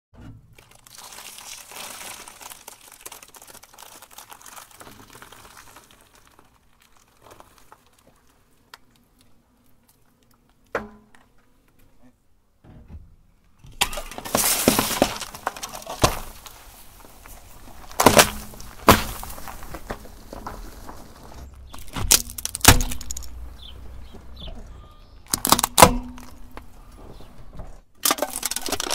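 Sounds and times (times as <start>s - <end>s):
tyre crushing cookies and wrapper: 0.4s - 10.4s, 13.8s - 24.2s, 25.2s - 26.7s, 28.0s - 28.9s
sharp cracks and pops: 0.5s - 11.8s, 13.6s - 24.4s, 25.2s - 26.7s, 28.0s - 28.9s
drink carton bursting: 13.8s - 20.0s, 21.7s - 23.3s, 25.3s - 26.4s.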